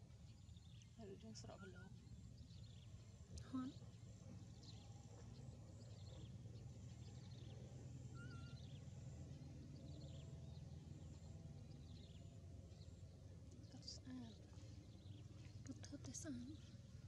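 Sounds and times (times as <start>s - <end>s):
steady low hum: 0.0s - 17.0s
faint high chirps: 8.1s - 8.8s.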